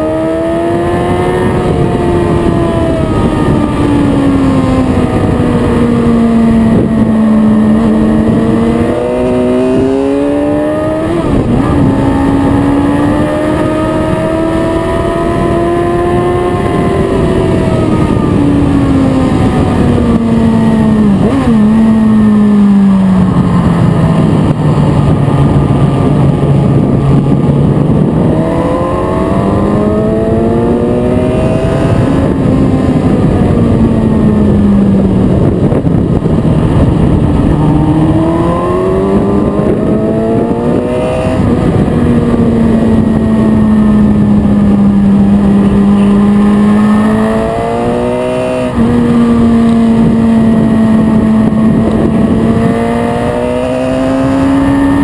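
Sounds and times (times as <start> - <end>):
motorcycle engine at speed: 0.0 - 55.0
wind rush: 0.0 - 55.0.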